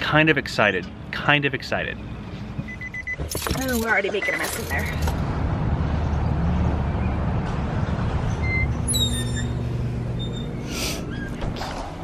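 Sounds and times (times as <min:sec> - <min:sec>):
traffic rumble: 0:00.0 - 0:12.0
high squeals: 0:08.3 - 0:11.4.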